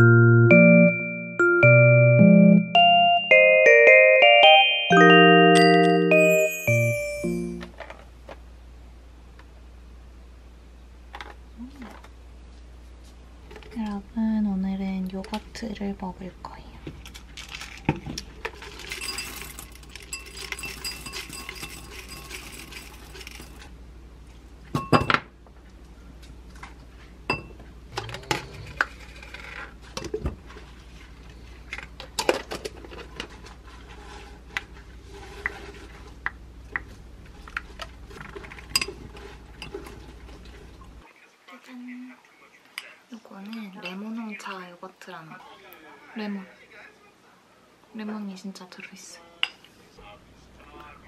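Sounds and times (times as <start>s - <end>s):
granola rattling out of jar: 17.2s - 23.7s
spoon clinking against glass: 18.9s - 23.6s, 27.3s - 27.5s.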